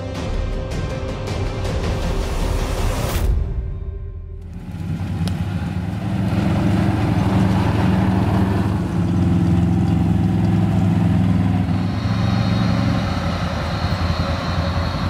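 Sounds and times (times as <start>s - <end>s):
quad bike engines running: 4.5s - 15.0s.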